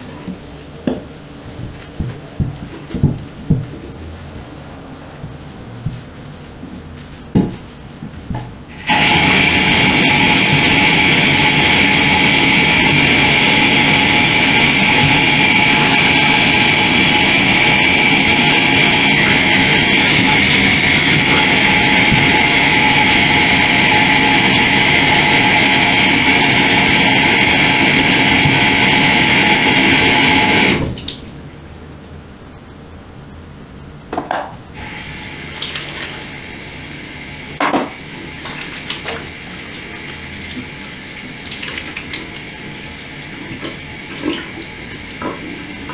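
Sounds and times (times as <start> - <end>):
tap water rushing into sink: 35.4 - 36.3, 37.6 - 45.9.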